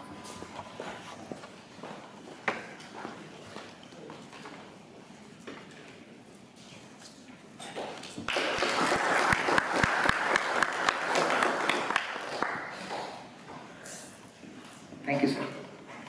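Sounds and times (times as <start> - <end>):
audience applauding: 8.3 - 13.2.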